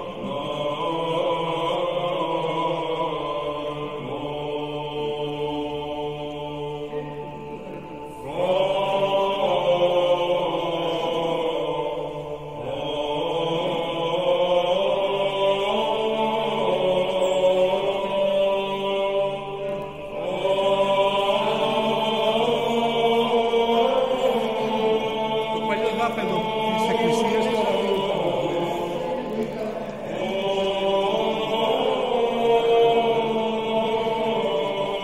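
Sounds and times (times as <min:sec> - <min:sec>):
choral chanting: 0:00.0 - 0:35.0.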